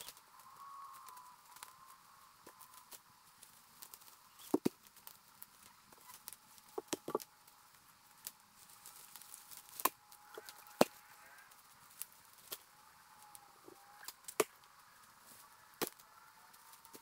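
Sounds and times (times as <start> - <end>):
dry sticks snapping and cracking: 0.0 - 7.6, 8.2 - 14.8, 15.8 - 17.0
footsteps on leaf litter: 8.5 - 11.0.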